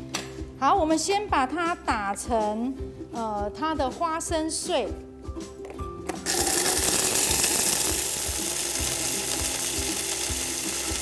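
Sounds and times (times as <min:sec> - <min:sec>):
hand blender grinding peanuts: 0:06.2 - 0:11.0.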